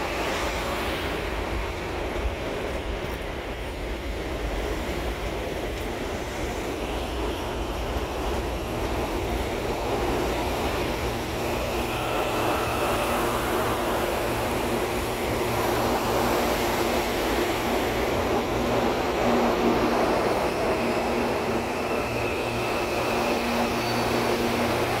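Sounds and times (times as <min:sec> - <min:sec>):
train wheels rumbling on rail: 0:00.0 - 0:25.0.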